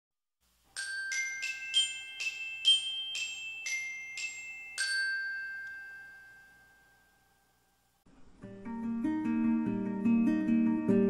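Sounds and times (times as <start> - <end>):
bell-like chime tune: 0.8 - 7.8.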